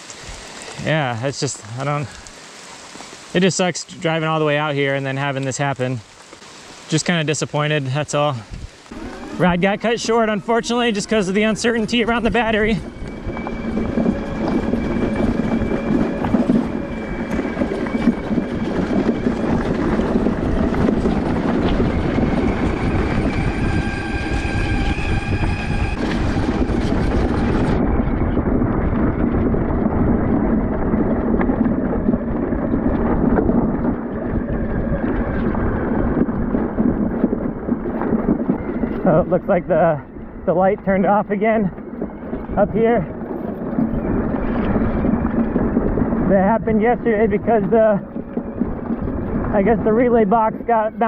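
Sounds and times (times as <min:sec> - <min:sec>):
vehicle rattling on rough trail: 0:00.0 - 0:51.0
thin high whine: 0:08.8 - 0:29.4.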